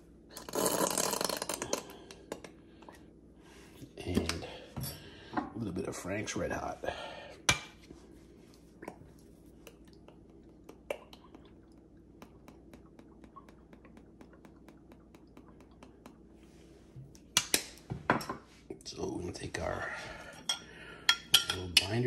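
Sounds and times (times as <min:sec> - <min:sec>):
sauce dripping: 0:08.8 - 0:16.3.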